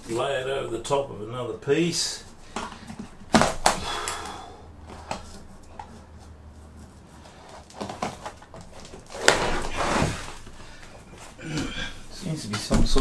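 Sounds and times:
lino ripping up: 7.7 - 10.4.

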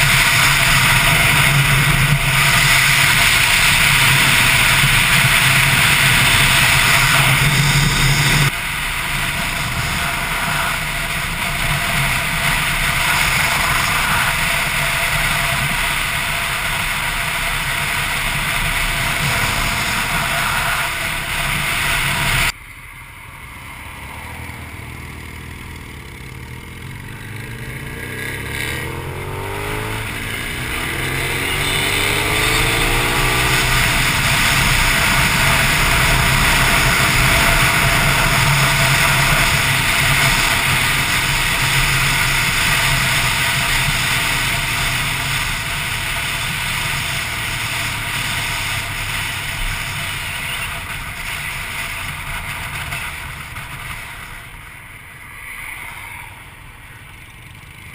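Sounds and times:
wind rush: 0.0 - 22.5
motorcycle engines: 0.0 - 57.9.

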